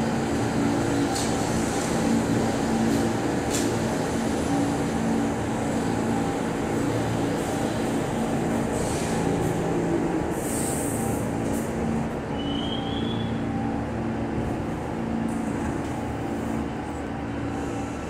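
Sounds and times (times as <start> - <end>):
subway train rumbling: 0.0 - 18.0
short high squeal: 12.4 - 13.4.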